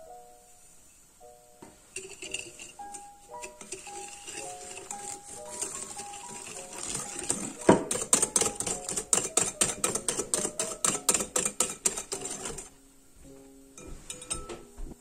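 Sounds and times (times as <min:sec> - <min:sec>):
soft background music: 0:00.0 - 0:15.0
whisk clicking against glass bowl: 0:02.0 - 0:12.7.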